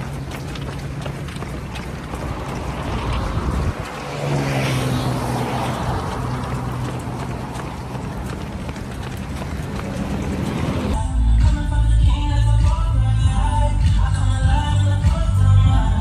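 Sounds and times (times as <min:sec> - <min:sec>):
runners' footsteps on road: 0:00.0 - 0:11.0
wind rumbling on microphone: 0:00.0 - 0:11.0.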